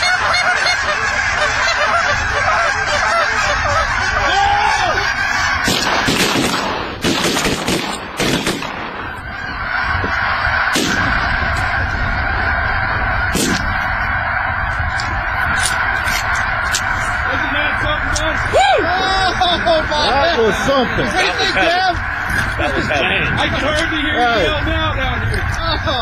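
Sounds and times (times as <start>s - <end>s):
geese honking: 0.0s - 26.0s
shotgun shots: 5.6s - 9.1s, 10.7s - 11.1s, 13.3s - 13.7s.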